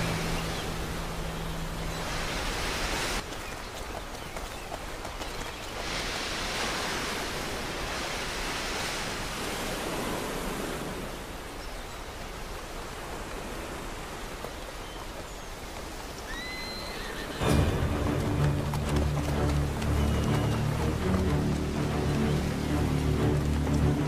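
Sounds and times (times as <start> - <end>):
surf washing over pebbles: 4.8 - 11.3.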